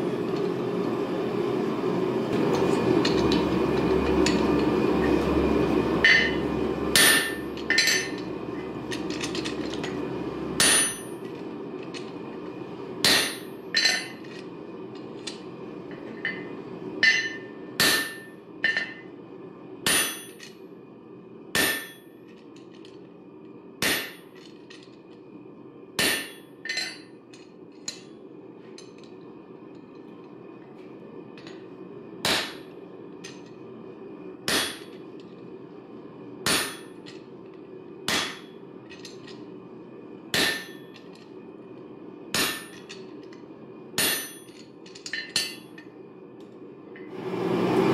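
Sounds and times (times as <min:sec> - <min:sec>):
steady hum: 0:00.0 - 0:47.9
hammer striking metal: 0:06.0 - 0:06.4, 0:07.0 - 0:08.2, 0:10.6 - 0:11.2, 0:13.0 - 0:14.1, 0:17.0 - 0:18.9, 0:19.9 - 0:20.4, 0:21.6 - 0:22.0, 0:26.0 - 0:27.0, 0:32.2 - 0:32.6, 0:34.5 - 0:34.9, 0:36.5 - 0:36.9, 0:38.1 - 0:38.5, 0:40.3 - 0:40.9, 0:42.4 - 0:42.9, 0:44.0 - 0:44.5.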